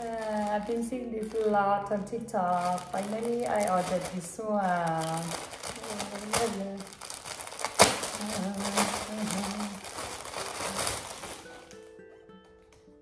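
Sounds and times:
plastic bag crinkling: 0.0s - 12.0s
plucked guitar music: 9.8s - 13.0s.

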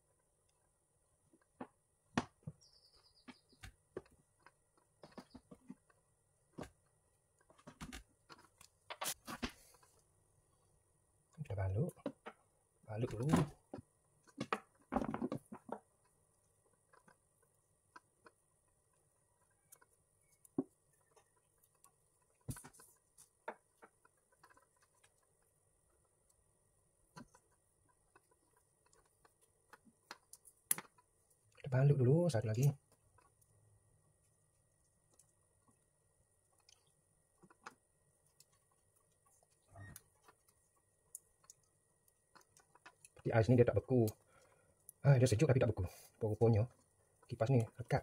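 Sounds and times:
electrical tape crackling off roll: 7.4s - 10.1s.

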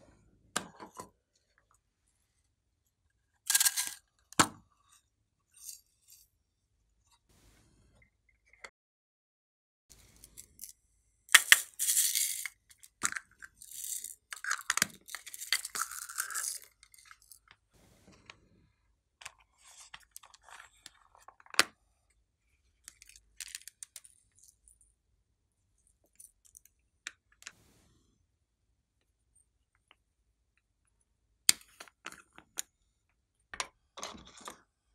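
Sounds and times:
confetti pouring with dry rattling: 11.3s - 12.6s, 15.0s - 17.4s.

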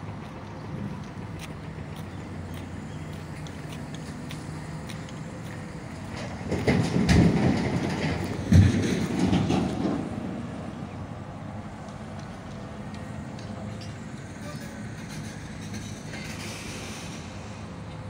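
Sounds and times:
road vehicle rumbling and rattling: 0.0s - 18.0s.

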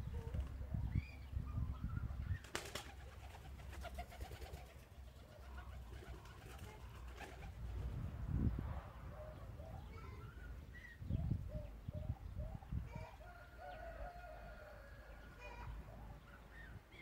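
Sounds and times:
birds calling faintly: 8.4s - 17.0s.

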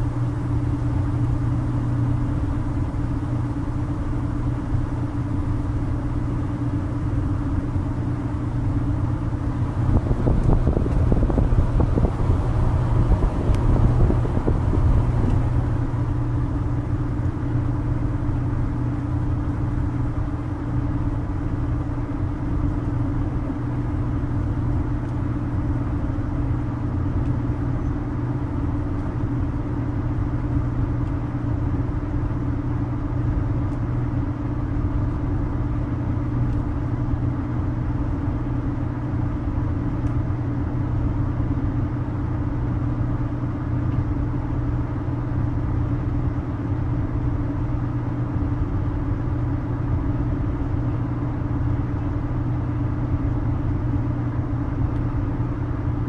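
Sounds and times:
washing machine drum spinning: 9.0s - 18.2s.

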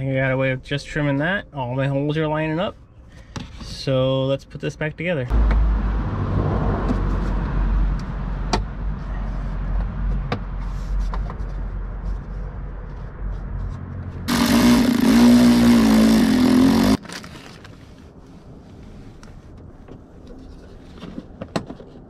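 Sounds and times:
cordless drill motor whine: 14.3s - 17.0s.

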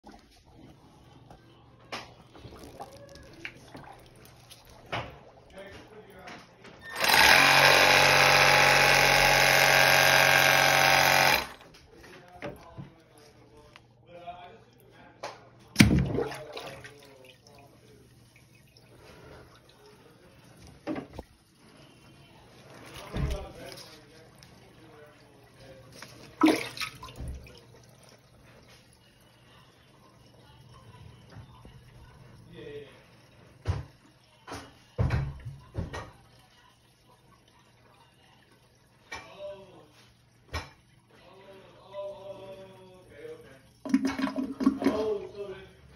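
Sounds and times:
water dripping and sloshing: 0.0s - 6.8s, 14.7s - 45.9s
air drain gun blast: 6.9s - 11.6s.

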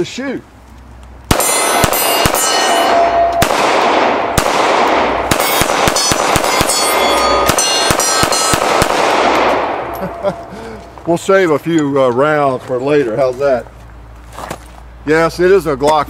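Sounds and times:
steel targets ringing: 1.3s - 4.3s, 5.3s - 10.5s
pistol shots echoing: 1.3s - 10.4s.

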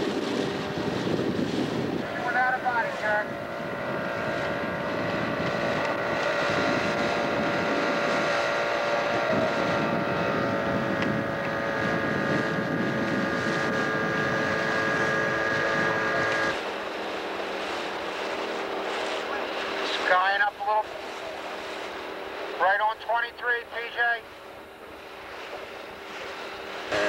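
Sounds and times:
wind on microphone: 0.0s - 19.4s
outboard motor running: 0.0s - 27.0s.

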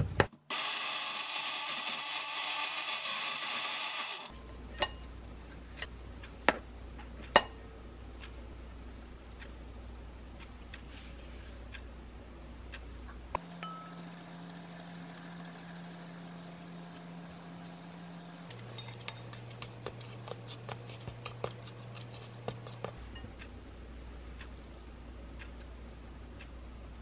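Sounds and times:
flour sifting through metal sieve: 10.8s - 11.6s, 13.4s - 23.0s
spatula stirring powder: 13.4s - 23.0s
utensils ticking against glass bowl: 13.4s - 23.0s.

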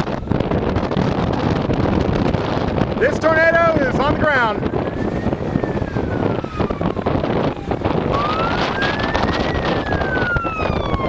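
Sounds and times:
wind buffeting microphone: 0.0s - 11.0s
siren wailing: 3.4s - 11.0s.

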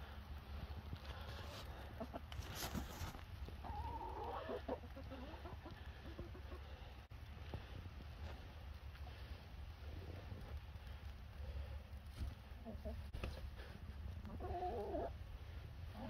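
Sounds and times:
hens clucking: 1.0s - 7.1s, 12.2s - 15.2s.

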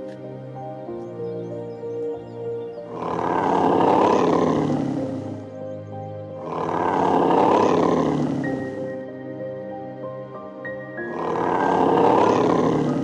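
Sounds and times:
background music: 0.0s - 13.0s
loud animal roar: 2.8s - 5.6s, 6.3s - 9.1s, 10.9s - 13.0s.

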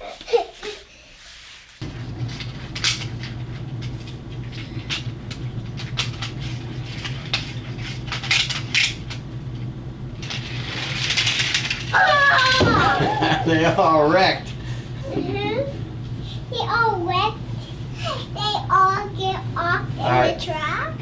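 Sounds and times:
steady low hum: 1.8s - 21.0s.

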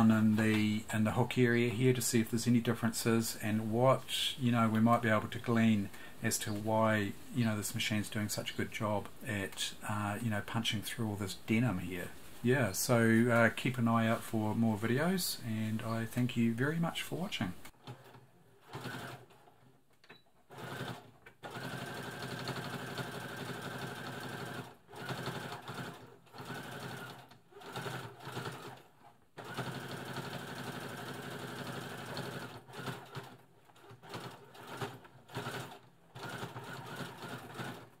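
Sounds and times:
sewing machine stitching: 17.7s - 19.8s, 20.5s - 38.0s.

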